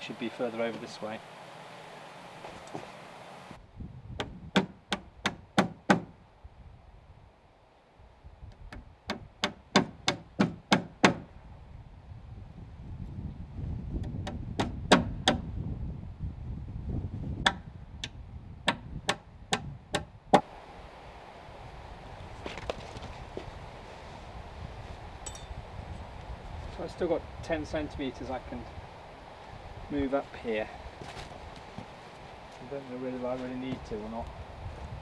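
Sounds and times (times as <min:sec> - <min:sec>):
sharp knocks on timber log: 0:04.2 - 0:06.1, 0:08.7 - 0:11.3, 0:14.0 - 0:15.4, 0:17.4 - 0:17.6, 0:18.7 - 0:20.4.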